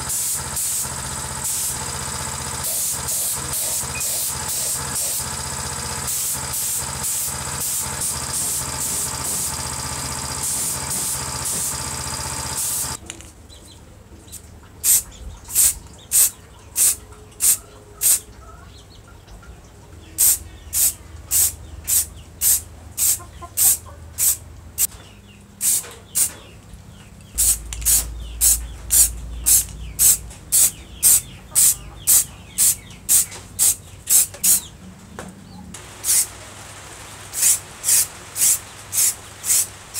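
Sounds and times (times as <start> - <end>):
spray paint can hissing: 0.0 - 13.0, 14.8 - 15.0, 15.6 - 18.2, 20.2 - 24.4, 25.6 - 26.3, 27.4 - 34.6, 36.0 - 36.3, 37.3 - 39.7
steady mechanical hum: 0.0 - 39.9.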